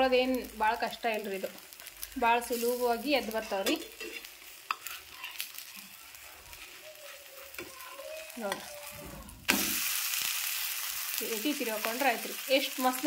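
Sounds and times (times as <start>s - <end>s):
flatbread sizzling on pan: 0.0s - 13.0s
spatula scraping: 2.6s - 9.8s.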